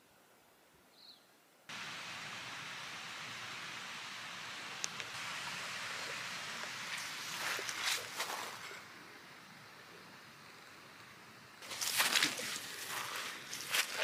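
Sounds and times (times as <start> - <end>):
steady hiss: 1.7 - 14.0
footsteps through wet moss: 6.9 - 8.8, 11.6 - 14.0.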